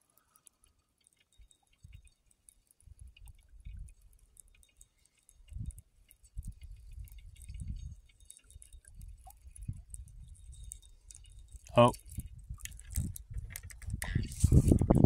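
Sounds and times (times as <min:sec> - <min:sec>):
fishing reel ticking: 0:00.0 - 0:15.0
wind on microphone: 0:06.4 - 0:08.2, 0:08.9 - 0:15.0.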